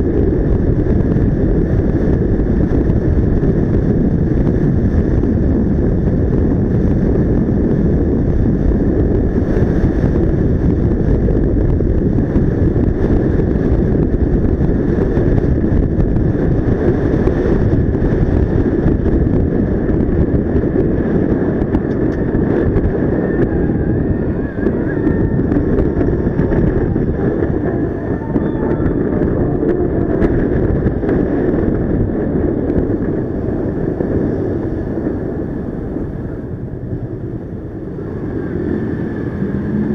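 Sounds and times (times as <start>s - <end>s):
scooter engine running: 0.0s - 39.9s
wind rush on microphone: 0.0s - 39.9s.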